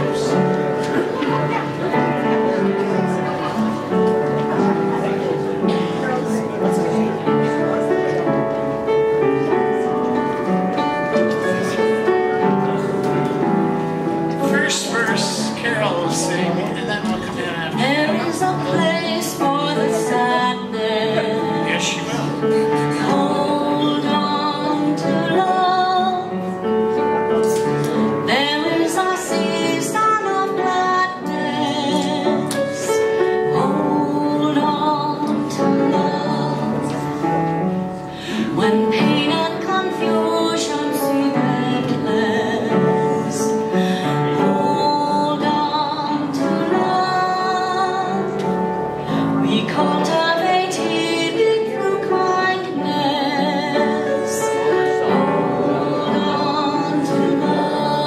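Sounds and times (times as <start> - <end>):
musical accompaniment: 0.0 - 58.0
group of women singing: 17.8 - 26.5, 27.5 - 37.4, 38.2 - 48.4, 49.2 - 58.0.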